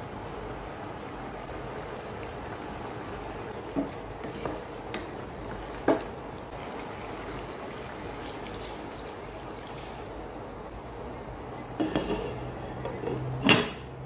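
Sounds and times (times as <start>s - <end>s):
water pouring into pot: 4.8s - 10.2s.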